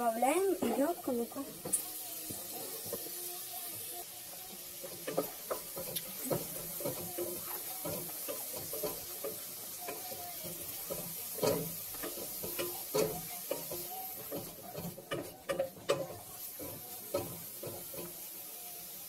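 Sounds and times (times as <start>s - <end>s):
vegetables sizzling in oil: 0.0s - 19.0s
spatula scraping and knocking pot: 4.8s - 18.3s.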